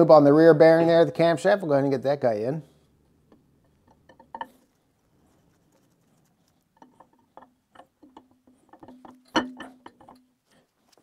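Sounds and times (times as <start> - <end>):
camshaft knocking and clinking metal: 6.8 - 10.3
metallic ringing: 8.8 - 10.2.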